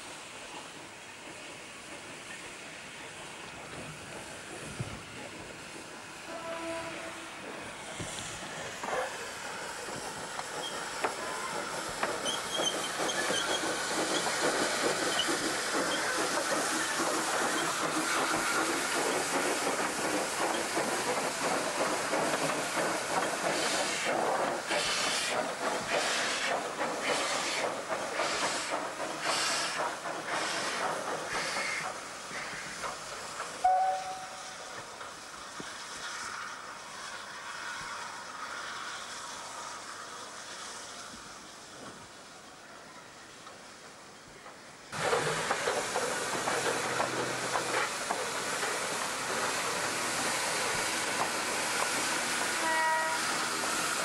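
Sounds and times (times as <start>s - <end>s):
steam hissing: 0.0s - 54.0s
two-note steam whistle: 6.3s - 7.5s, 33.6s - 34.8s, 52.5s - 53.4s.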